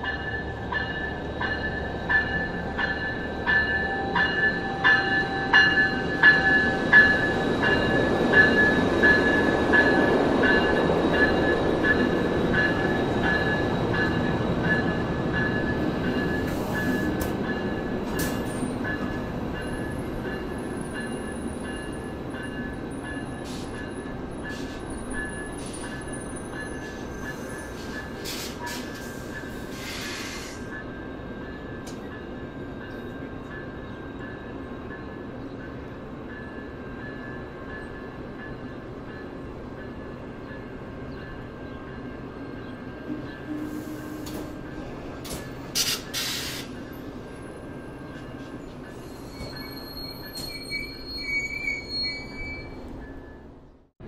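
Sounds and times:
train wheels rumbling on track: 0.0s - 53.7s
high-pitched wheel squeals: 48.9s - 53.4s.

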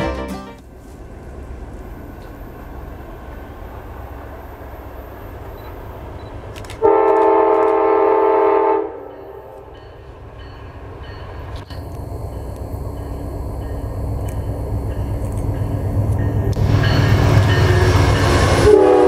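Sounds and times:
diesel locomotive rumbling: 0.0s - 19.0s
train air horn chord: 6.8s - 9.6s, 17.6s - 19.0s.

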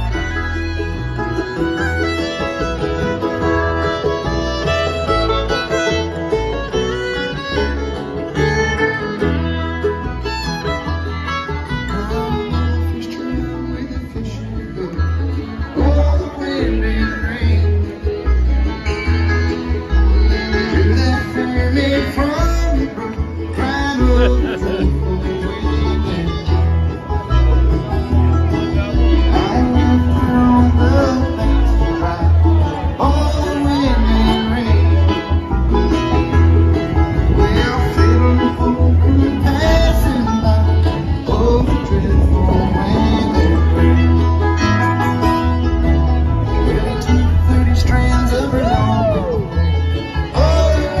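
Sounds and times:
banjo: 0.0s - 51.0s
live bluegrass band: 0.0s - 51.0s
picked acoustic guitar: 0.0s - 51.0s
pulsing low bass: 23.8s - 51.0s.

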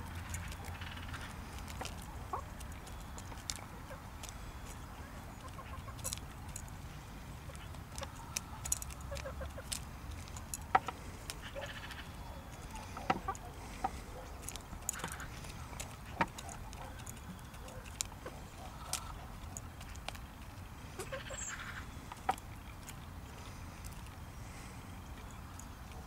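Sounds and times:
hens clucking softly: 0.1s - 6.6s, 10.7s - 19.8s, 20.8s - 22.5s.

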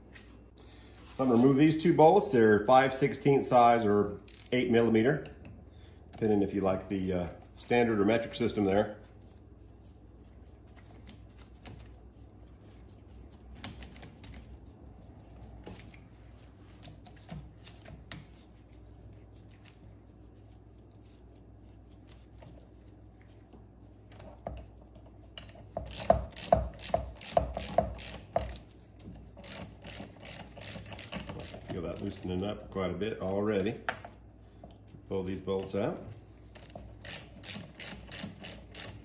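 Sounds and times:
socket ratchet clicking: 25.4s - 28.6s, 29.4s - 32.1s, 36.6s - 39.0s.

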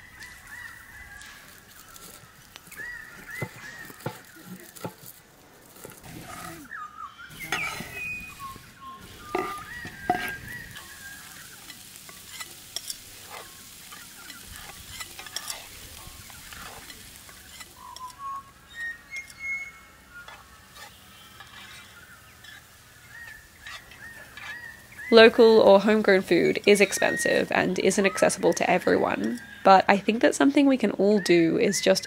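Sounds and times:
spoon scraping pan: 0.0s - 6.7s, 7.3s - 29.6s
vegetables sizzling in a skillet: 0.0s - 32.0s
utensils knocking against pan: 3.3s - 5.2s, 9.2s - 18.2s.

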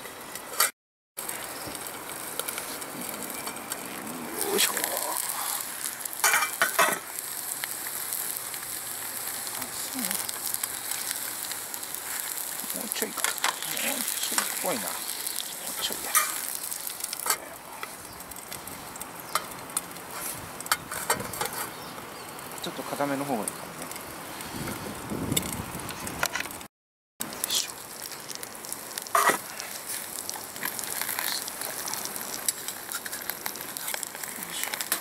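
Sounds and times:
eggs sizzling in a pan: 1.2s - 24.6s, 27.2s - 35.0s.

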